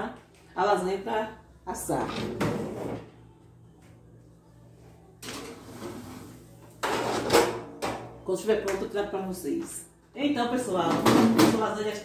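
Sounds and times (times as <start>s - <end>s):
pan scraping sliding into oven: 5.3s - 7.6s.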